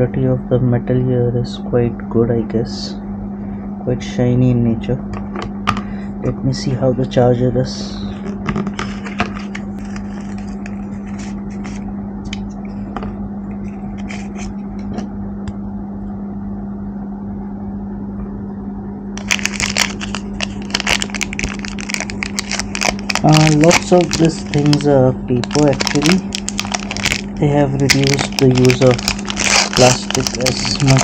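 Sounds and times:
steady low hum: 0.0s - 31.0s
plastic wrapper crinkling: 8.4s - 11.8s, 19.2s - 31.0s.

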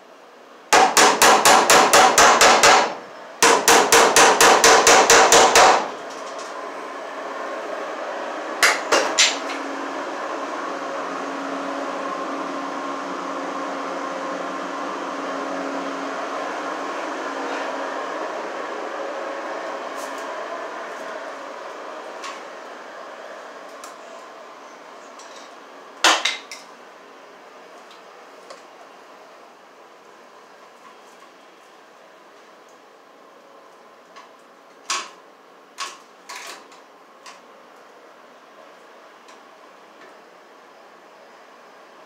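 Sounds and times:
hammer striking fast: 0.8s - 5.9s.

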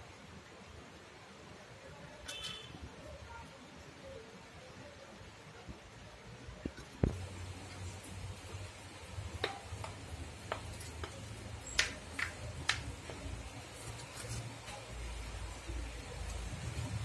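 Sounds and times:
cups tapping on marble floor: 9.3s - 13.4s.

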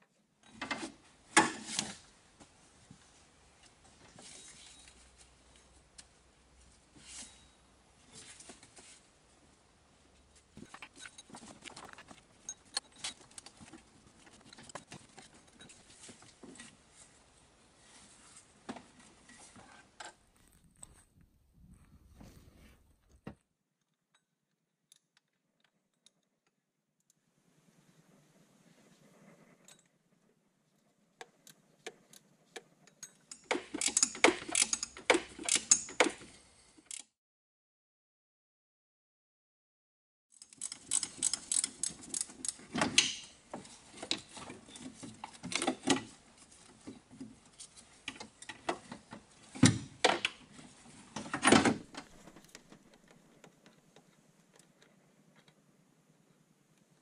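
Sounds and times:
tools clicking and knocking: 10.6s - 15.8s, 31.2s - 36.3s, 40.4s - 46.1s
metal tools clicking on engine parts: 31.3s - 36.3s, 40.4s - 43.4s.

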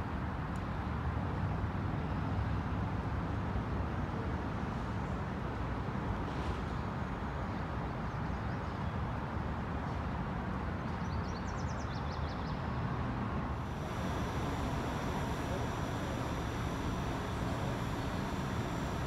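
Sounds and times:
distant road traffic rumble: 13.4s - 19.0s.

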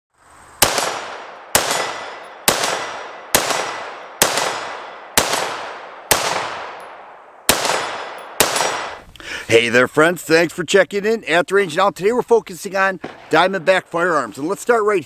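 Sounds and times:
rifle shots echoing: 0.6s - 9.0s, 13.0s - 13.8s.

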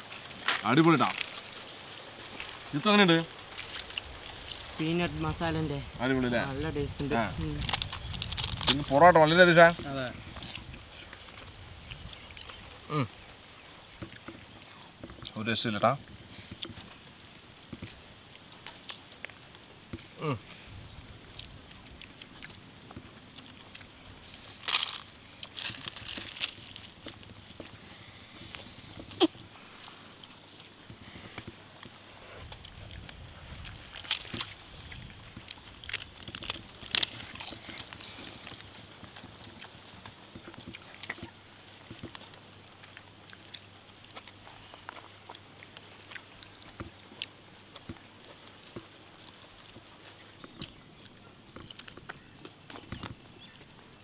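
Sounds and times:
banana leaves rustling: 0.0s - 54.0s
sharp crunches and clicks: 7.4s - 13.0s, 21.3s - 54.0s.

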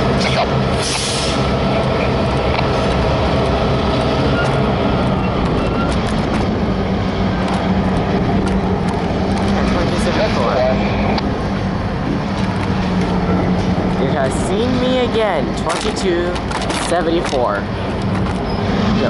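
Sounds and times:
low engine rumble: 0.0s - 19.0s.

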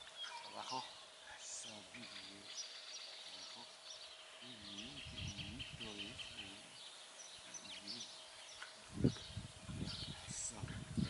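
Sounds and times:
faint steady hum: 0.0s - 11.0s
small birds chirping: 0.0s - 11.0s
faint low voice murmuring: 4.4s - 6.7s.

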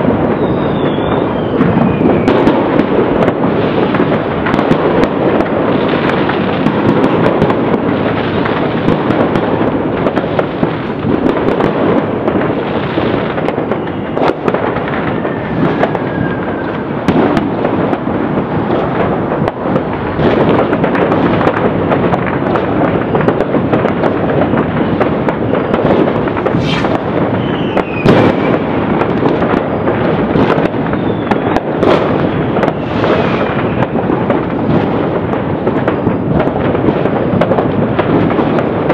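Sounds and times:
falling firework whistles: 0.0s - 4.0s, 13.5s - 17.5s, 24.4s - 35.0s
fireworks crackling and banging: 0.0s - 38.9s.

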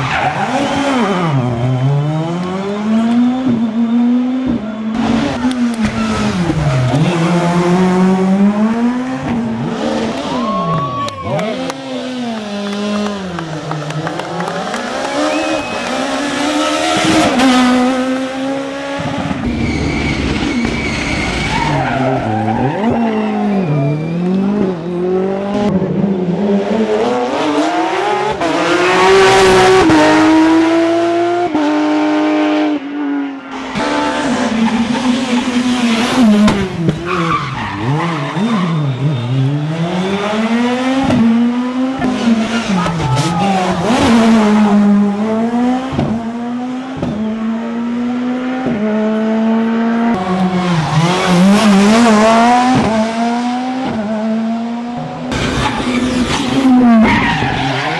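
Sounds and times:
rally car engines revving hard: 0.0s - 10.5s, 11.2s - 57.9s
tyre squeal: 19.4s - 24.5s, 37.0s - 40.6s.

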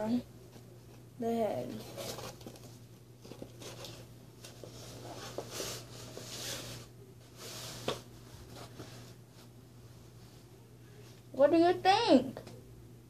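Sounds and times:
cardboard scraping and rustling: 1.7s - 9.2s.

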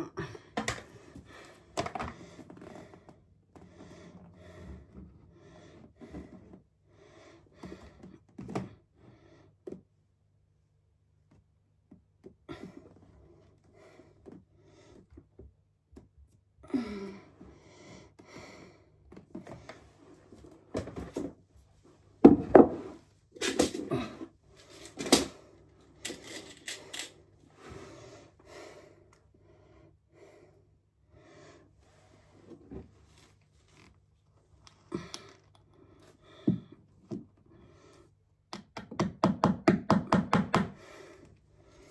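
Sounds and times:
hard objects clicking and clattering: 26.0s - 27.2s.

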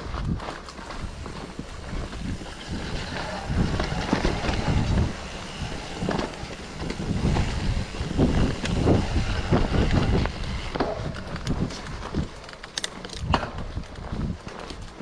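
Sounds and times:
bike rolling on dirt trail: 0.0s - 15.0s
bike thudding and rattling on bumps: 0.0s - 15.0s
wind buffeting microphone: 0.0s - 15.0s.

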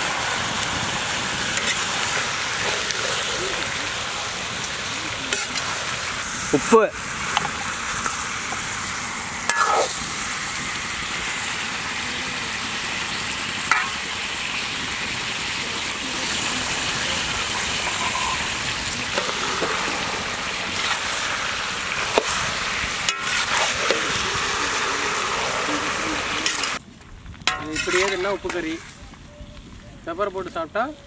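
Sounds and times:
chicken sizzling in oil: 0.0s - 26.8s
steel ladle scraping a pan: 1.5s - 3.8s, 5.3s - 6.2s, 9.4s - 10.0s, 13.7s - 14.1s, 17.4s - 26.8s, 27.5s - 28.9s.

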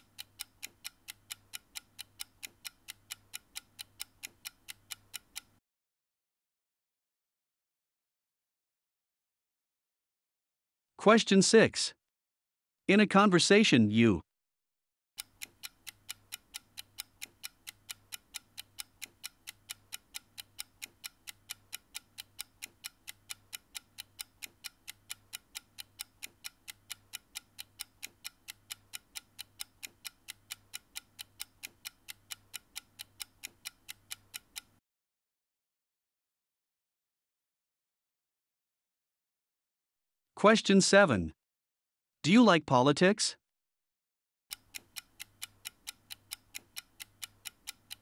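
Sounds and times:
clock ticking: 0.0s - 5.6s, 15.2s - 34.8s, 44.5s - 48.0s.

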